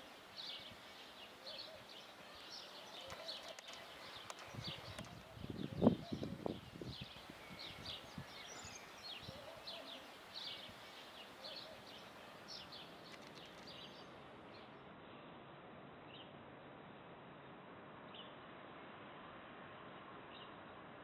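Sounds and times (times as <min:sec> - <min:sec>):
small birds chirping: 0:00.0 - 0:15.3
faint steady background noise: 0:00.0 - 0:21.0.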